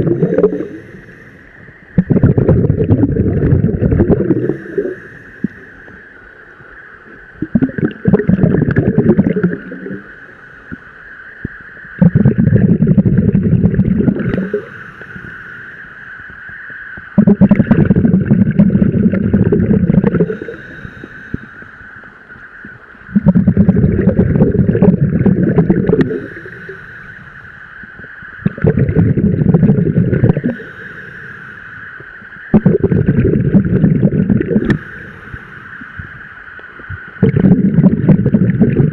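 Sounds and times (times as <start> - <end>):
diver exhaling bubbles underwater: 0.0 - 1.2, 2.0 - 6.0, 7.4 - 10.2, 12.0 - 15.4, 17.2 - 21.6, 23.1 - 26.8, 28.4 - 30.8, 32.5 - 35.0, 37.0 - 38.9.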